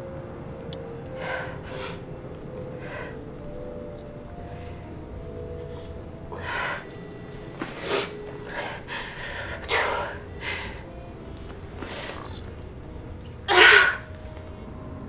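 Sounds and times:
woman gasping and sobbing: 1.0 - 3.5, 6.3 - 7.0, 7.6 - 11.0, 13.5 - 14.1.

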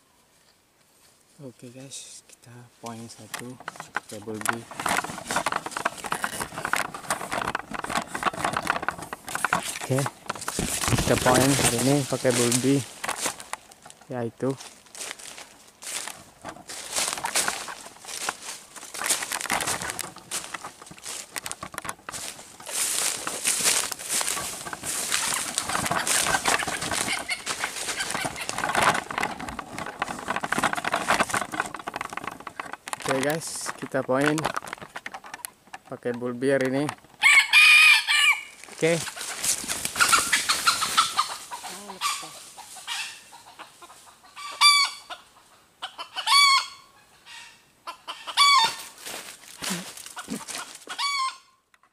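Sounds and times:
rustling dry leaf litter: 2.8 - 34.8, 37.2 - 42.9, 48.5 - 51.0
bird wings flapping: 3.6 - 13.8, 16.1 - 35.4, 38.7 - 41.4
rustles in leaf litter: 9.6 - 13.5, 22.1 - 28.6
junglefowl calling: 22.1 - 31.8, 37.2 - 49.0, 49.6 - 51.7.

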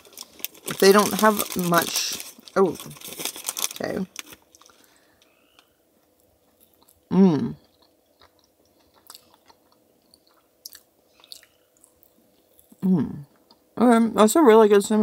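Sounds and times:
person humming: 7.1 - 7.6, 12.8 - 13.3
wet mouth clicks chewing: 7.6 - 12.8.

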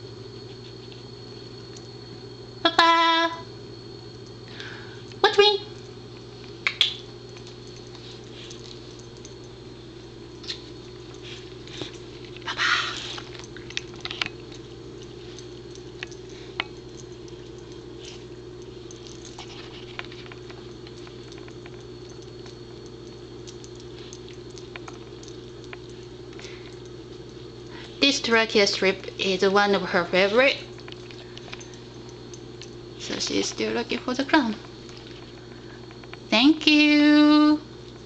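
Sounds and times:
steady low hum: 0.0 - 38.0
dog sniffing: 10.4 - 21.4.

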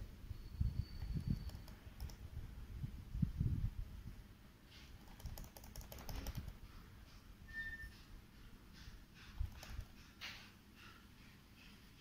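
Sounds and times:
keyboard key clicks: 5.0 - 6.6.

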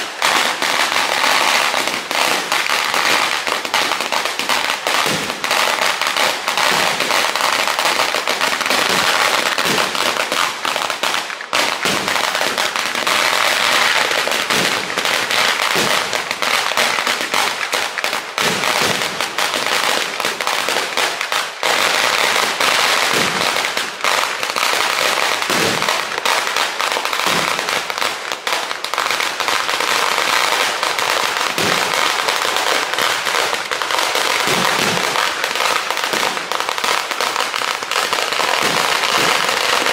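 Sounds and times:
firecrackers crackling: 0.0 - 39.9
deep fireworks booms: 5.0 - 5.7, 11.2 - 17.7, 23.1 - 24.0, 25.4 - 26.2, 31.5 - 32.3, 34.3 - 36.6, 38.6 - 39.9.

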